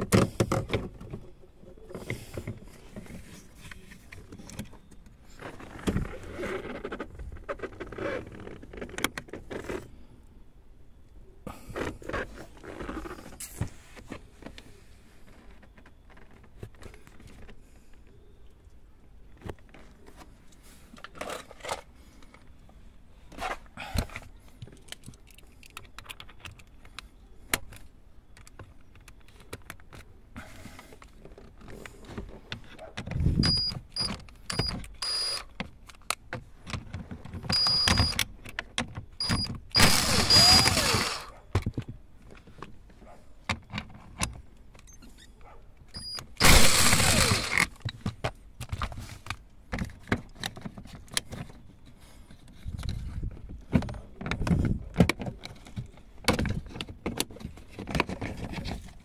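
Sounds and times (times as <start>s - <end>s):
plastic clicks and rattles: 24.0s - 30.1s.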